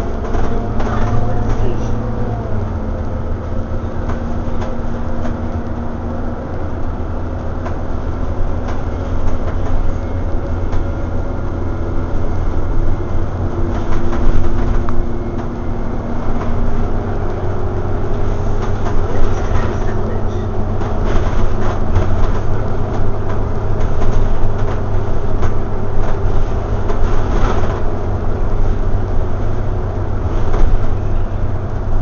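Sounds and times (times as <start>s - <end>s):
bus engine drone: 0.0s - 32.0s
body rattles and knocks: 3.9s - 12.1s, 12.9s - 28.2s.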